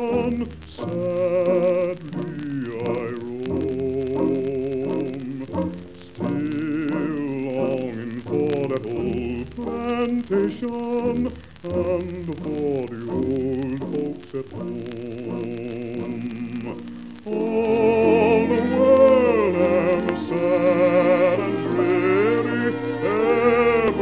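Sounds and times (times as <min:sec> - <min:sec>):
singing with vibrato: 0:00.0 - 0:24.0.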